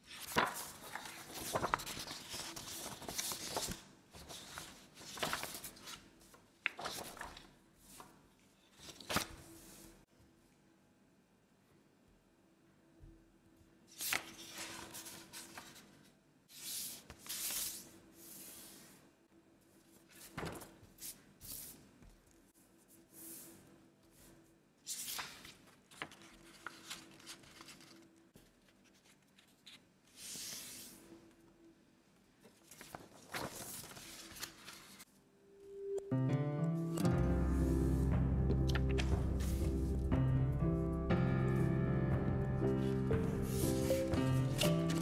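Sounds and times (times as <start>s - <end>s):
paper rustling: 0.0s - 10.0s, 14.0s - 19.0s, 24.9s - 31.0s, 32.4s - 35.1s, 42.7s - 45.0s.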